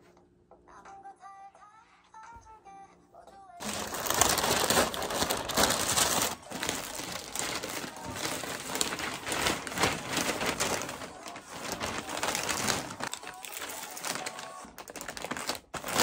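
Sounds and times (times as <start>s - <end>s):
mailer bags crinkling: 3.6s - 16.0s.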